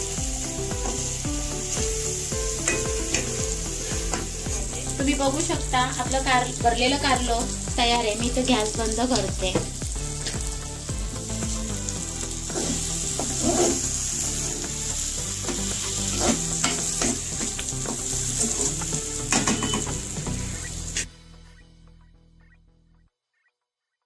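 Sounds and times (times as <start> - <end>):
stuffing sizzling in hot oil: 0.0 - 21.1
spatula stirring and scraping: 12.4 - 14.6, 15.5 - 19.0.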